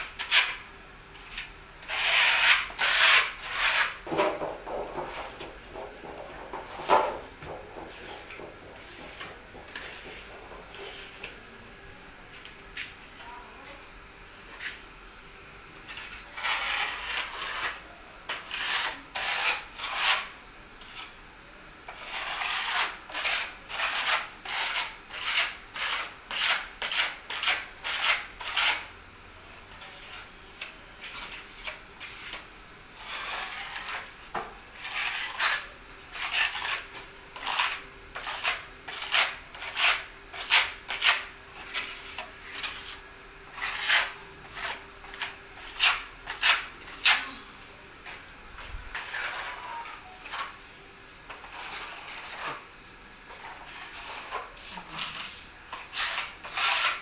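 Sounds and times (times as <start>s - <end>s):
steel blade scraping on wall: 0.0s - 0.6s, 1.2s - 5.9s, 7.8s - 11.3s, 15.9s - 21.1s, 21.9s - 28.9s, 33.0s - 34.1s, 34.7s - 47.4s, 48.9s - 50.6s, 51.3s - 52.7s, 53.3s - 57.0s.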